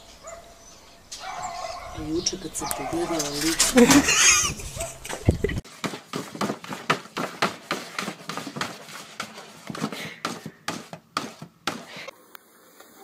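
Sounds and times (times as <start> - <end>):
paper bag rustling and crackling: 5.6 - 12.1.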